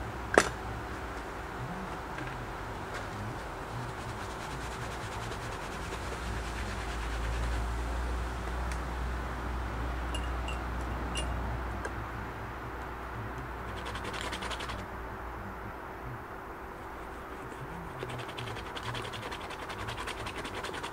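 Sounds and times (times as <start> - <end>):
low outdoor rumble: 0.0 - 20.9
paint scraped across canvas: 3.0 - 8.0, 13.6 - 14.8, 16.8 - 20.9.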